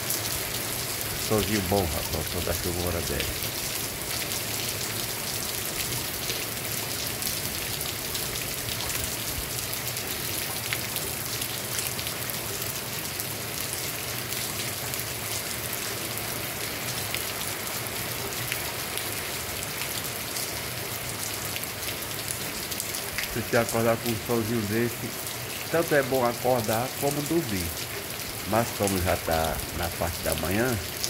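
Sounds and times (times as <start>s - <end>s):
heavy rain: 0.0s - 31.0s
water running off roof: 0.2s - 8.0s, 22.4s - 31.0s.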